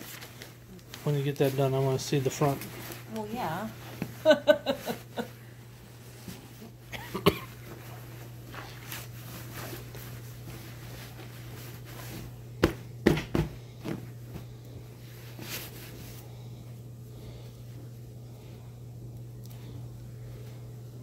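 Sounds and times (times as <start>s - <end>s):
fabric rustling: 0.0s - 12.8s, 13.6s - 16.4s
low steady hum: 0.0s - 21.0s.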